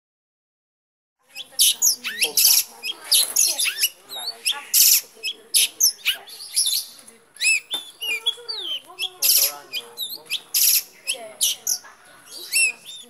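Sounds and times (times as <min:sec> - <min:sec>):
bird chirping and whistling: 0:01.3 - 0:13.0
harsh rasping bird notes: 0:01.3 - 0:13.0.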